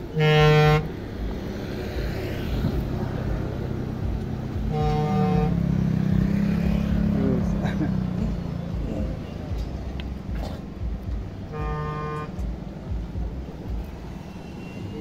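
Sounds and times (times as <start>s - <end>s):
passing traffic hum: 0.0s - 15.0s
vehicle horn blasts: 0.1s - 0.9s, 4.6s - 5.6s, 11.5s - 12.5s.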